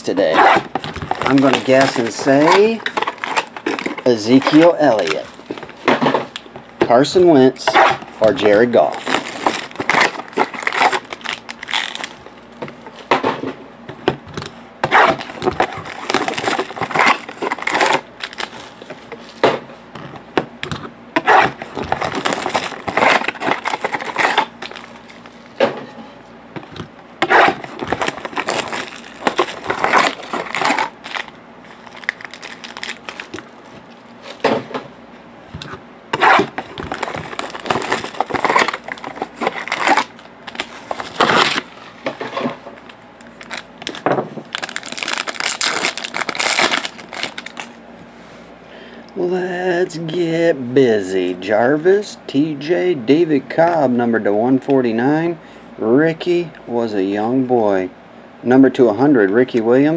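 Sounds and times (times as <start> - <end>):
plastic wrap crinkling: 0.2 - 6.4, 8.2 - 12.5, 15.0 - 19.0, 21.3 - 25.6, 27.3 - 34.3, 36.2 - 47.8.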